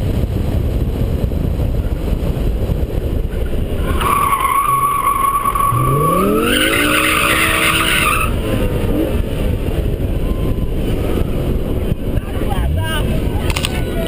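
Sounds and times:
road rumble: 0.0 - 14.0
wind buffeting: 0.0 - 14.0
car engine revving: 2.9 - 14.0
tyres squealing: 3.8 - 8.4.

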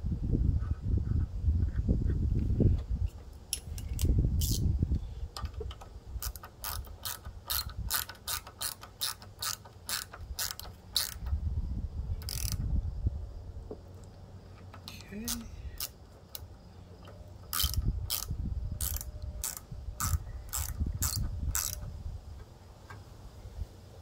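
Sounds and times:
ratchet wrench clicking: 3.5 - 4.7, 5.4 - 11.4, 12.2 - 12.6, 14.7 - 16.5, 17.4 - 21.9.

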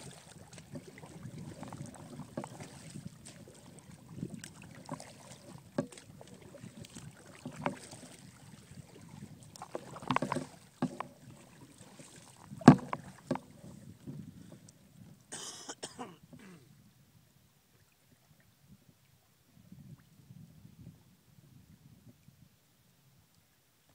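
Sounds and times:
paddle knocks: 0.0 - 14.2
paddle splashing through water: 0.0 - 15.6.

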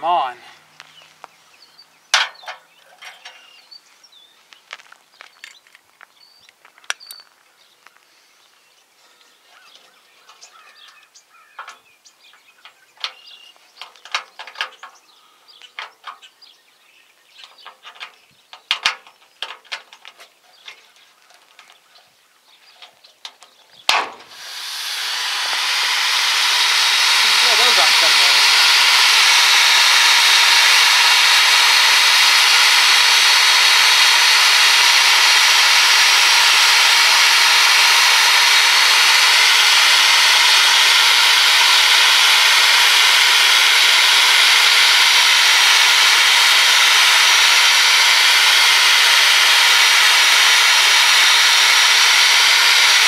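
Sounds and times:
loud steady hiss: 23.9 - 53.0.

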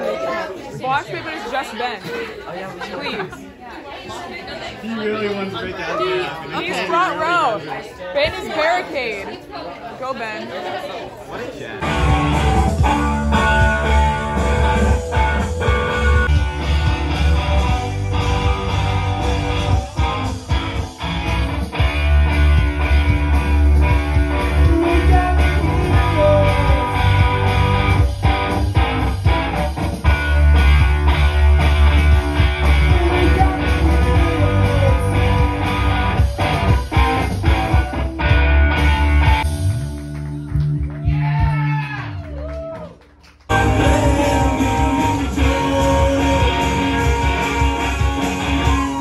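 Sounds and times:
live rock band playing: 11.8 - 41.0, 43.5 - 49.0.

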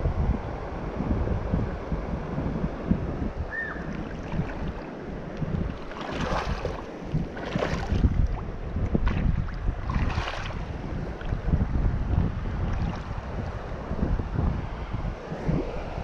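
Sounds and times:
wind rumbling on microphone: 0.0 - 16.0
shallow river rushing: 1.8 - 16.0.

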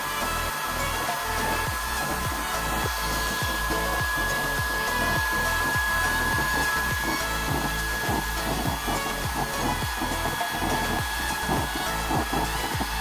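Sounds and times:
electric fan whine: 0.0 - 13.0.

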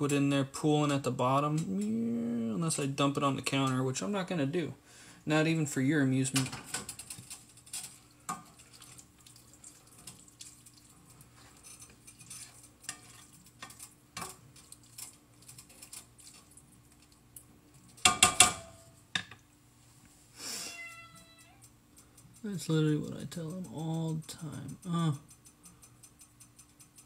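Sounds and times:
cookware and utensils clattering: 6.2 - 9.1, 10.0 - 16.5, 17.9 - 19.4.

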